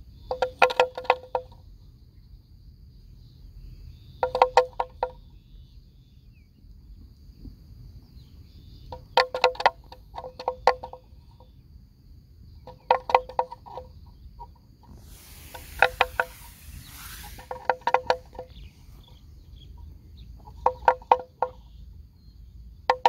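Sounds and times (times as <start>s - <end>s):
faint high insect whine: 0.0s - 23.0s
hiss: 14.8s - 19.4s.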